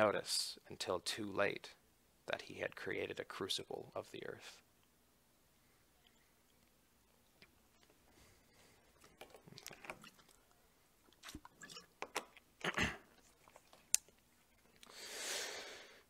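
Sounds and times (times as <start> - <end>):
rustling and clicking handling noises: 6.1 - 12.4, 13.1 - 14.9
soft drawn-out breath: 8.0 - 9.0, 14.8 - 16.0.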